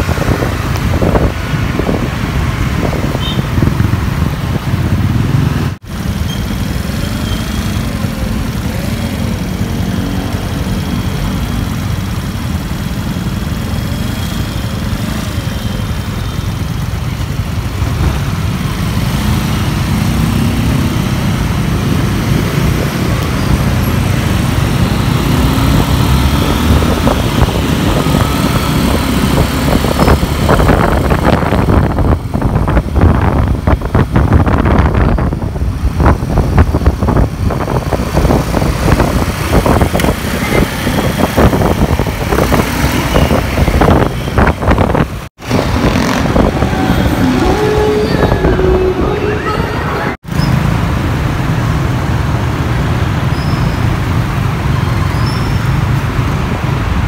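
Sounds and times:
other vehicle engines: 0.0s - 57.0s
wind buffeting the microphone: 25.7s - 47.5s.

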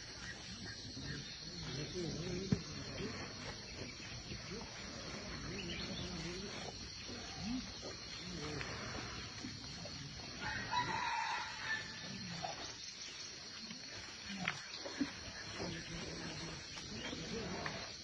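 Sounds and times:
high insect-like hum: 0.0s - 18.0s
rooster crowing: 10.4s - 12.2s.

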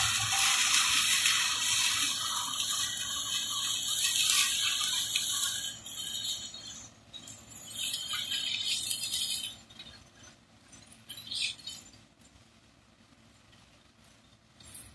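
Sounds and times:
hissing rattle: 0.0s - 10.0s.

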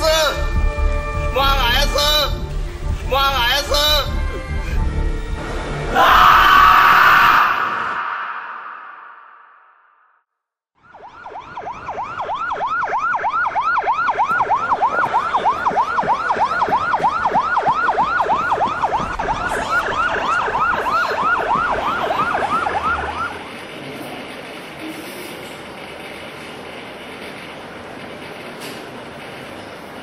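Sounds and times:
siren yelping: 5.9s - 9.3s, 10.8s - 23.4s.

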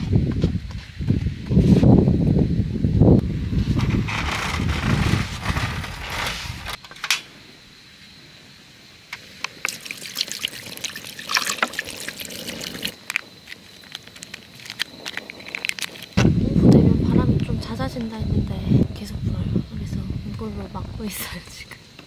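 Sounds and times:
wind buffeting microphone: 0.0s - 6.8s, 14.6s - 21.6s
cooking clicks and crackles: 9.2s - 16.2s.

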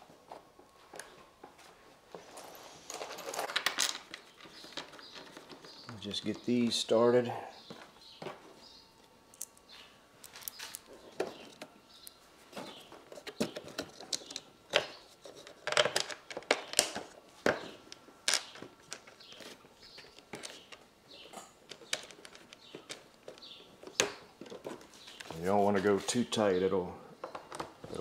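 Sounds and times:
small parts clicking and tapping: 13.2s - 20.8s, 21.7s - 25.3s.

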